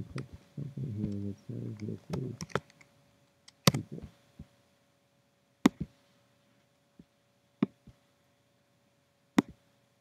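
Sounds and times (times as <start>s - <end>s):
computer mouse clicks: 1.0s - 2.9s, 3.5s - 4.1s.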